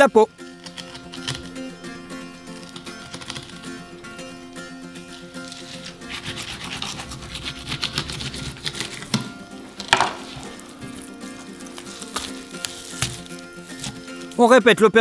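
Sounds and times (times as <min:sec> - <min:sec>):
knife scraping fish skin: 0:00.3 - 0:14.4
knife knocking on board: 0:09.1 - 0:10.5.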